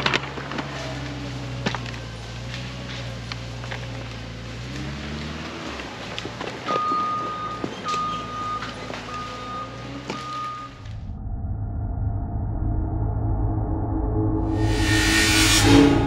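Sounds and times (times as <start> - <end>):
backup alarm beeping: 6.7 - 10.9.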